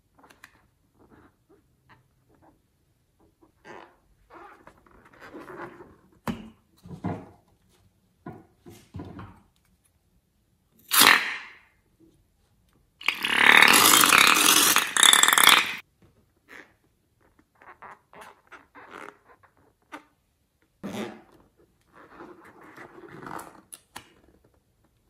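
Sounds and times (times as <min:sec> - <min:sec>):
balloon neck sputtering: 0:10.9 - 0:11.5, 0:13.0 - 0:15.8.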